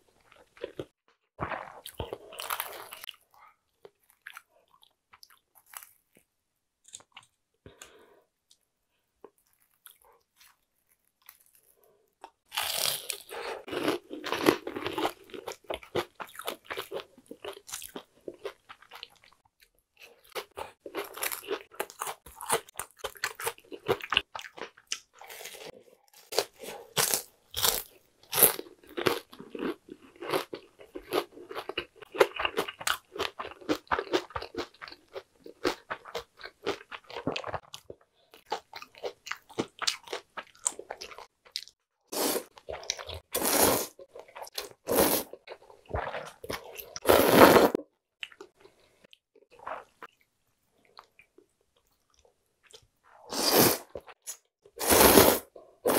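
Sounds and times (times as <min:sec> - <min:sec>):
crunchy chewing: 0:09.2 - 0:41.8.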